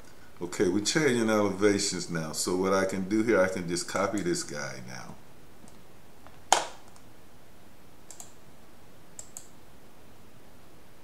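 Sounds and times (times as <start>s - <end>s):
computer mouse clicks: 6.5s - 7.1s, 8.1s - 8.4s, 9.2s - 9.6s.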